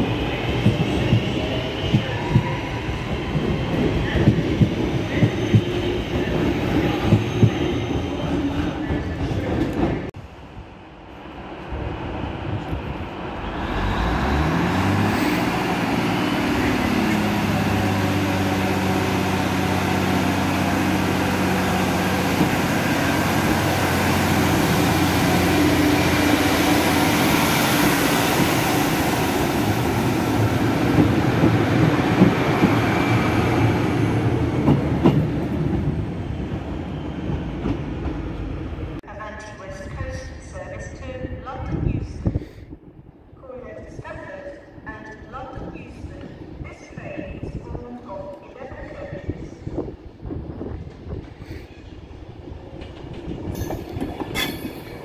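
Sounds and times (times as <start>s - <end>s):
diesel railcar engine revving: 13.4s - 33.6s.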